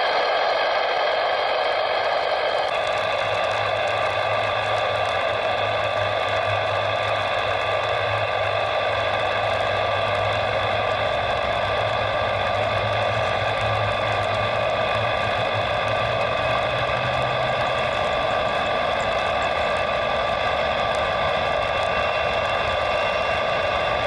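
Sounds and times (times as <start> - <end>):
jet engines roaring with whine: 0.0 - 24.0.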